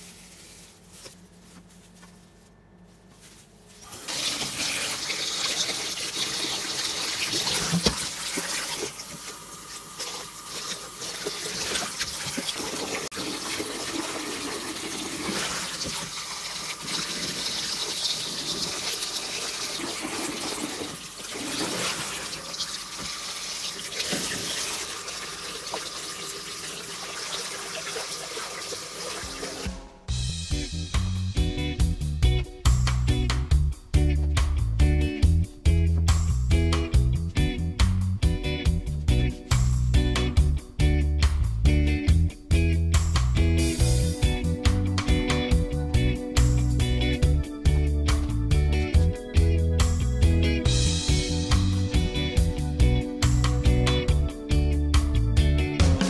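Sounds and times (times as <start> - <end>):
music: 29.3 - 56.0.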